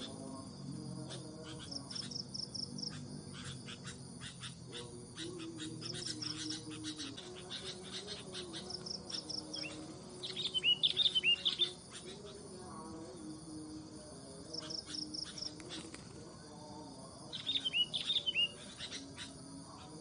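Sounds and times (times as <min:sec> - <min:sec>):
bird chirps and trills: 0:01.4 - 0:12.4, 0:17.3 - 0:19.4.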